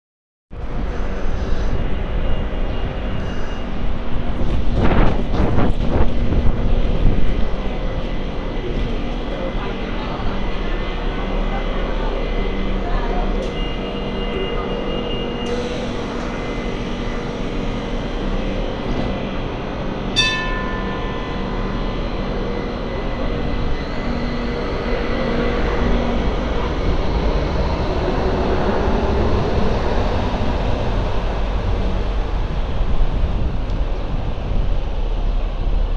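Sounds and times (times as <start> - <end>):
light rail train running on track: 0.5 - 35.9
tram car humming: 0.5 - 35.9
ringing chime: 20.2 - 22.0.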